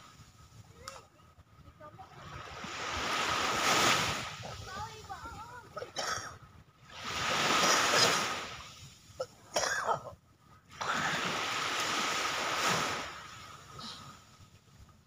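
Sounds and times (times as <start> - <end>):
small waves washing on pebbles: 2.3 - 5.6, 6.9 - 8.9, 10.8 - 13.6.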